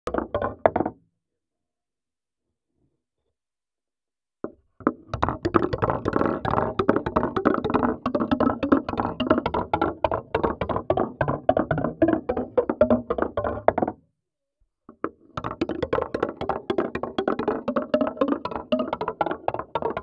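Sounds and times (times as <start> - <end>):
marbles clacking and rolling: 15.7 - 20.0.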